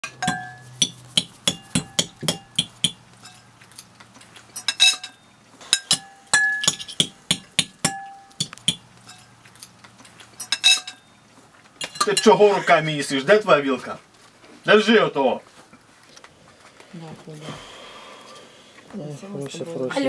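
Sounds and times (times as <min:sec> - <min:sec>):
cutlery clinking on plates: 0:00.0 - 0:11.1, 0:11.8 - 0:12.6.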